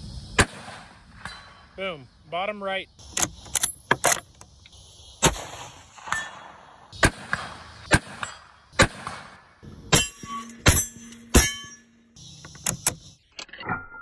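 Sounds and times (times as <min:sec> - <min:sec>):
rifle shots: 0:05.2 - 0:11.6
bullets hitting steel: 0:09.9 - 0:12.2
steel plate ringing: 0:09.9 - 0:12.4.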